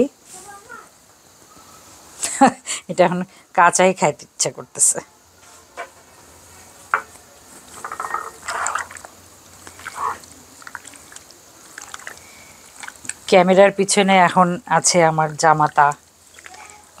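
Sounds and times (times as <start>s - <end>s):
hands squishing wet marinade: 8.5s - 13.4s, 14.8s - 17.0s.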